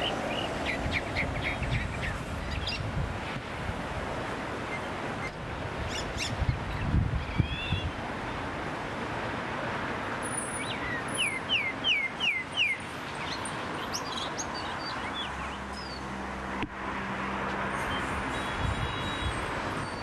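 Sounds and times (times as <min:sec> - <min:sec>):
bird chirping: 0:00.0 - 0:02.9, 0:10.3 - 0:16.4
traffic noise: 0:00.0 - 0:20.0
vehicle engine hum: 0:12.9 - 0:20.0.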